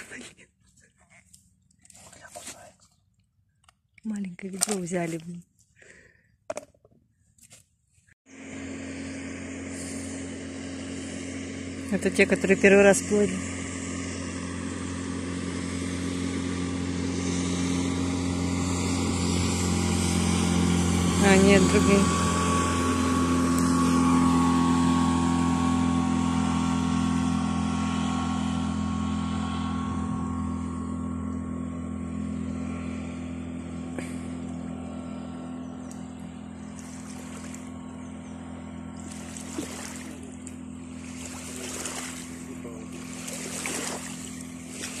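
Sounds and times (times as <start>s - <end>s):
motorboat engine running: 0.0s - 7.3s, 8.2s - 45.0s
water washing and splashing: 39.1s - 45.0s.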